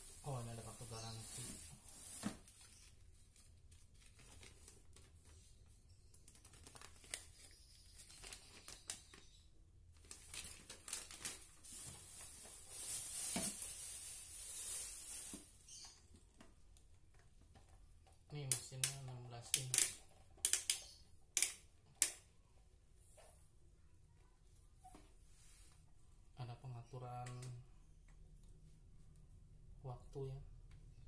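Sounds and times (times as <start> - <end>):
paper and plastic wrap rustling: 0.0 - 5.6, 6.2 - 15.7
small clicks and knocks: 15.9 - 22.3.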